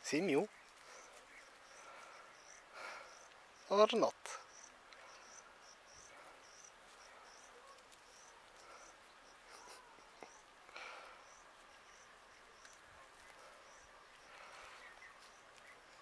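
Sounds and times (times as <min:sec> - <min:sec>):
soft rustle: 0:00.0 - 0:03.5, 0:04.4 - 0:16.0
cricket chirping: 0:00.3 - 0:16.0.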